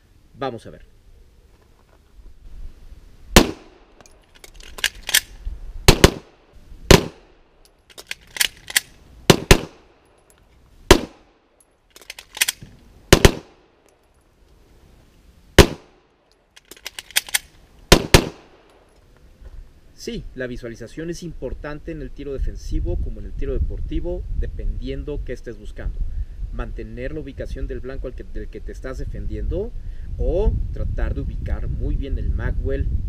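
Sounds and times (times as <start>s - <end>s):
pistol gunshots: 3.4s - 3.9s, 5.9s - 7.4s, 8.4s - 10.0s, 10.9s - 11.3s, 12.4s - 13.7s, 15.6s - 16.0s, 17.9s - 18.7s
magazine change clicks and clatter: 3.4s - 6.2s, 6.9s - 14.2s, 15.6s - 19.0s.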